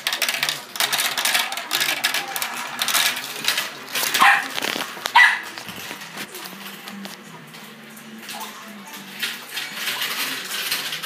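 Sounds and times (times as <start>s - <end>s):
marbles rattling down track: 0.0s - 6.3s, 9.1s - 11.0s.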